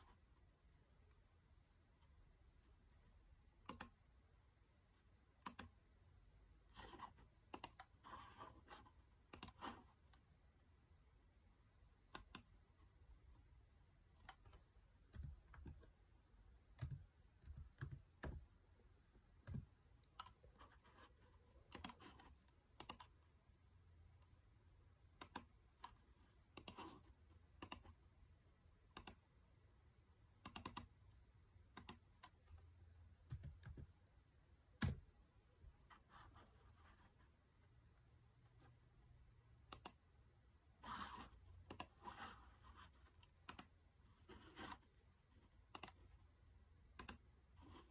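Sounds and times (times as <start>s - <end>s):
computer mouse and keyboard clicks: 3.6s - 4.0s, 5.4s - 5.8s, 6.8s - 10.2s, 12.1s - 12.5s, 21.7s - 23.2s, 25.2s - 28.0s, 28.9s - 29.2s, 30.4s - 30.9s, 39.7s - 40.0s, 40.9s - 43.8s, 45.7s - 46.1s, 46.9s - 47.9s.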